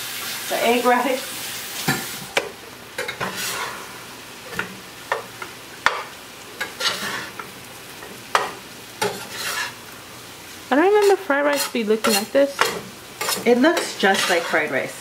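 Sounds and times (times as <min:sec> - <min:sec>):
low sizzle of frying: 0:00.0 - 0:15.0
metal spatula scraping a skillet: 0:03.0 - 0:04.7, 0:05.9 - 0:07.5, 0:08.3 - 0:09.8, 0:10.9 - 0:15.0.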